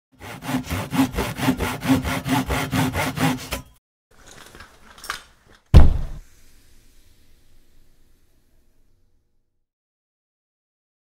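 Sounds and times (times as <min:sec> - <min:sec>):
hand saw cutting wood: 0:00.1 - 0:03.8.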